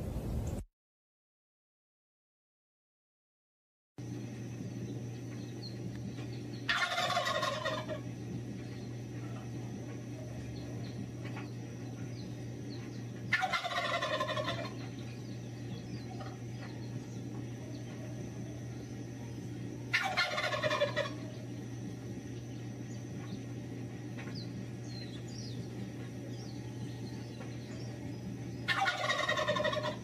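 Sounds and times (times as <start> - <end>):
steady low hum: 0.0 - 0.6, 4.0 - 30.0
turkey gobbling: 6.6 - 8.1, 13.0 - 15.2, 15.8 - 16.8, 19.9 - 21.4, 28.6 - 30.0.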